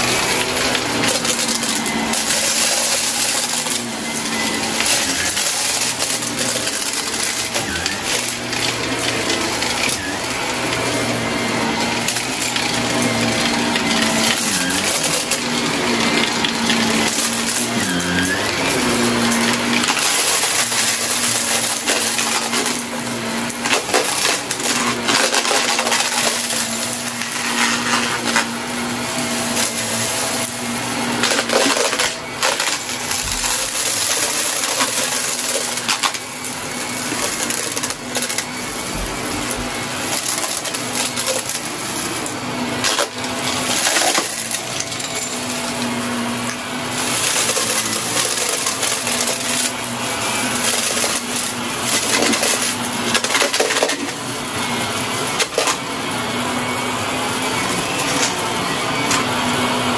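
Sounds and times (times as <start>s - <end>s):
vacuum cleaner motor hum: 0.0s - 59.9s
debris crackling and rattling: 11.8s - 54.3s.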